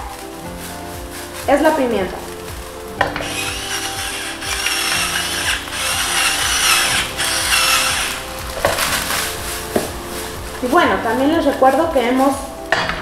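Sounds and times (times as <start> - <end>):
electric pepper mill grinding: 3.2 - 9.5.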